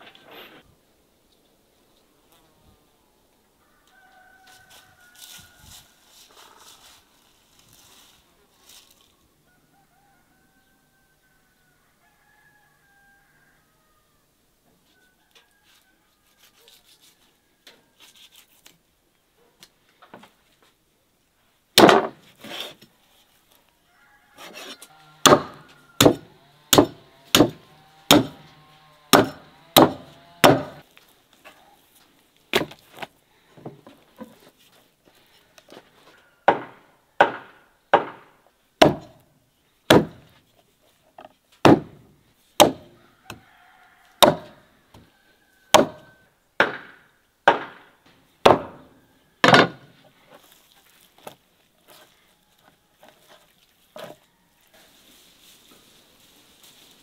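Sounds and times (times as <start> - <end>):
meat cleaver chopping on wood: 25.2 - 28.5, 29.1 - 30.8, 38.8 - 39.1, 39.9 - 40.2, 41.6 - 42.0, 42.6 - 42.8, 44.2 - 44.5, 45.8 - 46.0.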